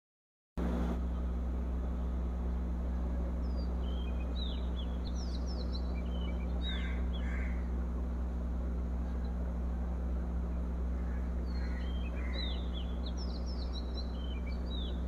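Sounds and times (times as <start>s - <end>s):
constant hiss: 0.6s - 15.0s
low hum: 0.6s - 15.0s
faint bird chirps: 2.9s - 7.7s, 10.9s - 15.0s.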